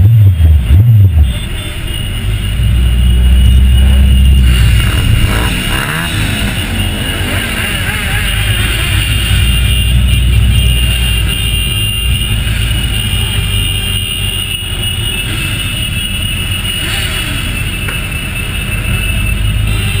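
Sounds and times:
motorcycle engines rumbling: 0.0s - 20.0s.

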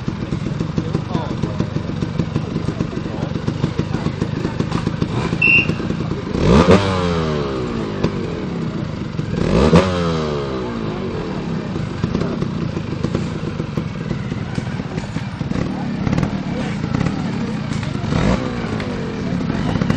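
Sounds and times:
motorcycle engine revving: 0.0s - 19.9s.

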